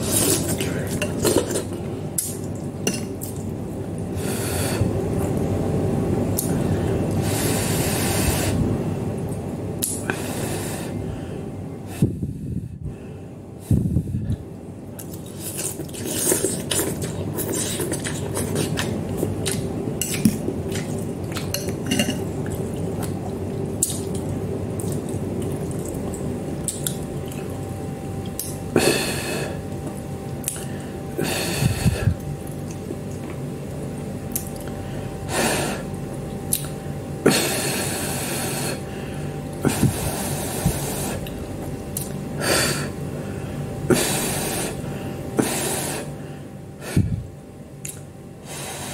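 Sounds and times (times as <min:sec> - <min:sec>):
steady background hum: 0:00.0 - 0:48.9
chewing: 0:15.0 - 0:27.5.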